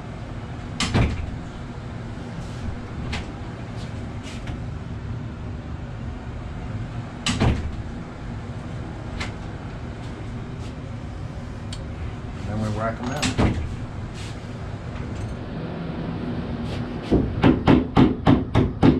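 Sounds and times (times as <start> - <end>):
steady low hum: 0.0 - 18.9
door swinging shut with loud bang: 0.8 - 1.4, 7.2 - 7.8, 13.2 - 13.8.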